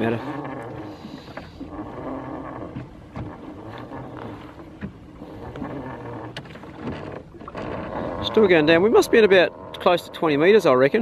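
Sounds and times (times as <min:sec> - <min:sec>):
knocks and rubbing: 0:00.0 - 0:09.1
low motor hum: 0:00.0 - 0:11.0.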